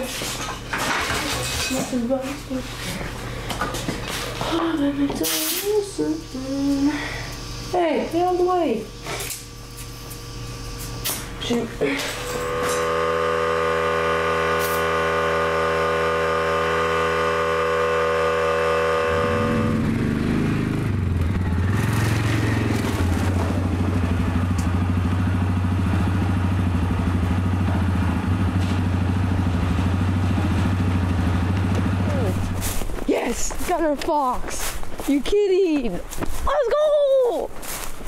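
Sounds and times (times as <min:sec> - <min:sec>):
air compressor humming: 0:00.0 - 0:36.6
atv engine revving: 0:12.1 - 0:32.6.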